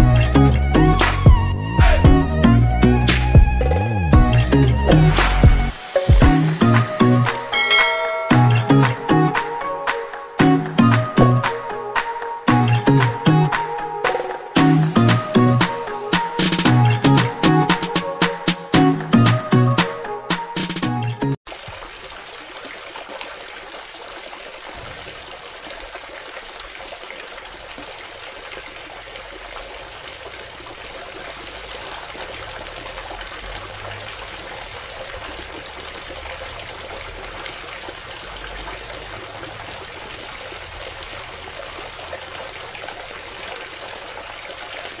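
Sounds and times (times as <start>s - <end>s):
water pouring onto ground: 21.5s - 45.0s.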